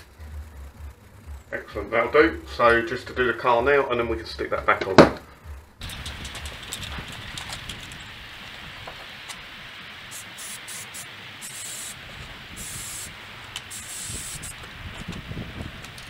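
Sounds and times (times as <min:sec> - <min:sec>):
steady background hiss: 0:00.0 - 0:16.0
aerosol spray hissing bursts: 0:05.9 - 0:15.4.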